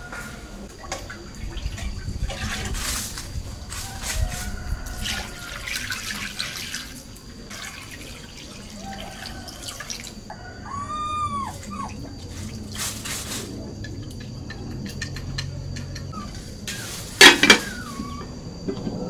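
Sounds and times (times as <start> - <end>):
water pouring into metal pot: 5.0 - 10.3.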